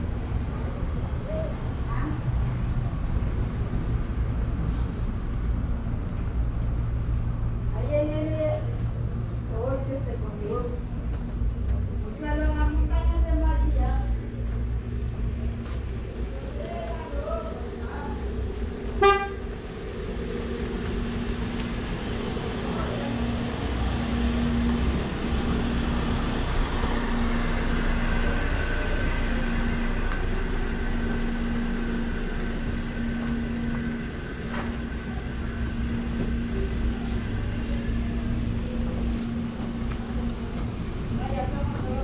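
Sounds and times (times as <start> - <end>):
low mechanical hum: 0.0 - 42.0
street rumble: 0.0 - 42.0
vehicle horn toot: 19.0 - 19.5.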